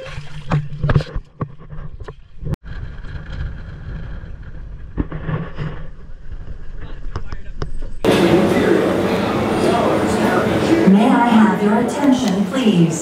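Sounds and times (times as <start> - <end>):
water splashing: 0.0 - 1.4
wind on microphone: 1.9 - 8.1.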